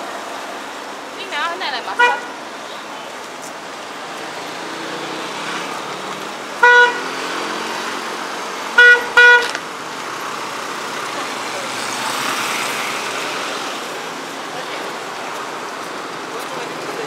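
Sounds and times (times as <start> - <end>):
street traffic: 0.0 - 17.0
vehicle horn honking: 1.9 - 2.4, 6.6 - 7.3, 8.7 - 9.6.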